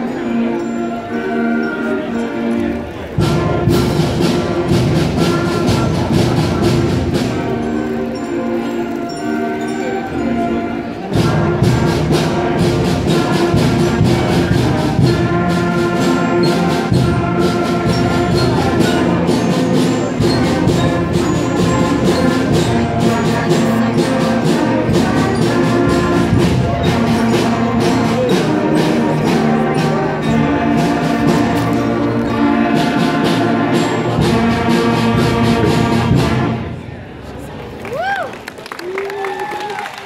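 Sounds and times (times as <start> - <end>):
ensemble playing live music: 0.0 - 40.0.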